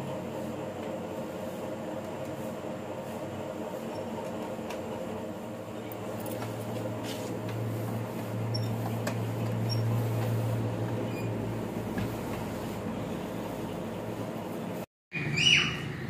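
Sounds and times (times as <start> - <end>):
steady low hum: 0.0 - 14.9
iron rubbing on cloth: 5.3 - 14.4.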